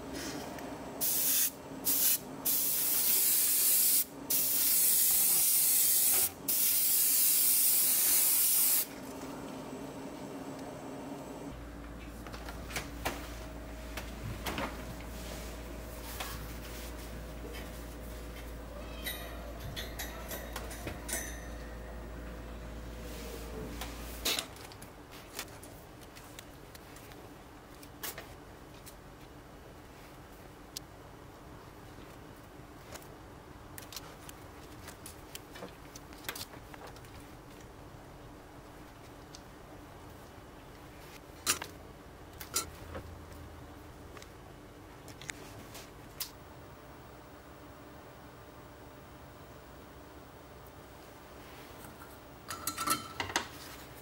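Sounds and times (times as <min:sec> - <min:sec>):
airbrush spraying hiss: 0:01.0 - 0:08.9
low steady hum: 0:08.9 - 0:54.0.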